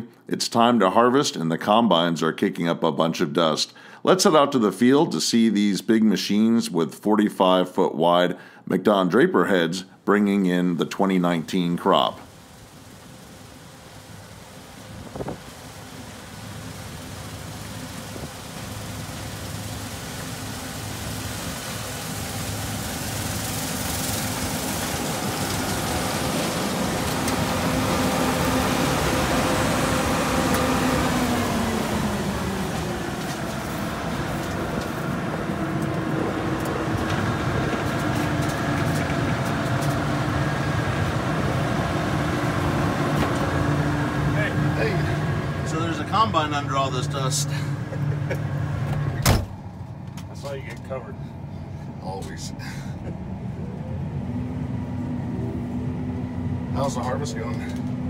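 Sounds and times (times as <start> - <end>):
combine harvester running: 10.8 - 58.0.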